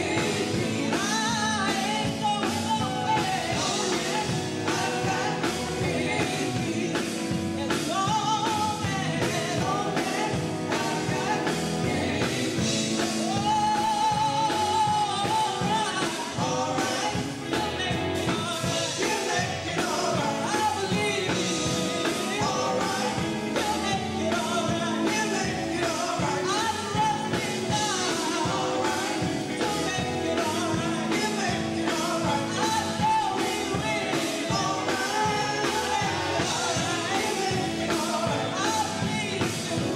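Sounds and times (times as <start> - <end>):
bass guitar: 0.0 - 39.9
drum kit: 0.0 - 39.9
electric guitar: 0.0 - 39.9
women singing with harmonies: 0.0 - 39.9.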